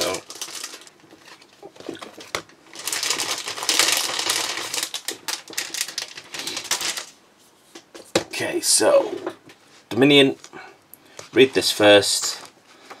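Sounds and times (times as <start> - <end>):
paper packaging rustling: 0.0 - 7.2.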